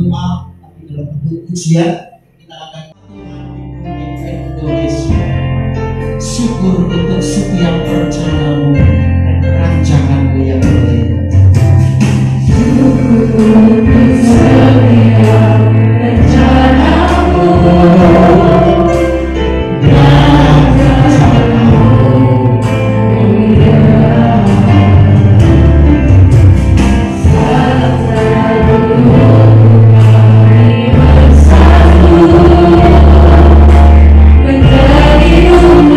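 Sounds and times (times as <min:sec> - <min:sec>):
amplified backing music with bass: 0:00.0 - 0:35.9
people singing together: 0:12.4 - 0:26.0, 0:27.1 - 0:35.9.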